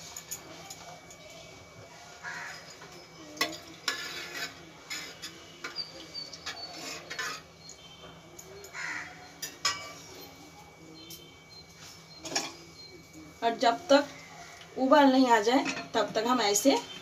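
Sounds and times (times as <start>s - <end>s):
spoon stirring and clinking in pot: 2.4s - 8.8s, 9.4s - 10.2s.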